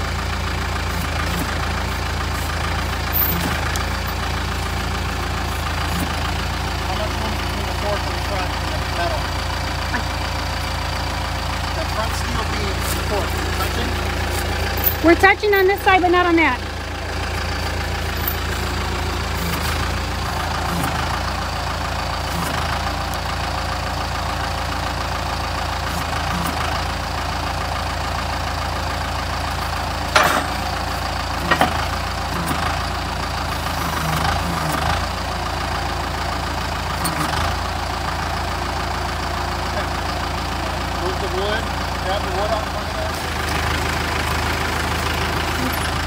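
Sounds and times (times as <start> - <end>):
tractor diesel engine idling: 0.0 - 46.0.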